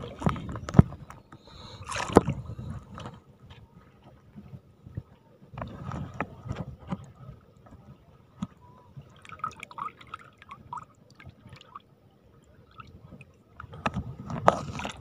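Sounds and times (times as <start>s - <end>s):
splashing in shallow water: 0.0s - 4.2s, 8.3s - 15.0s.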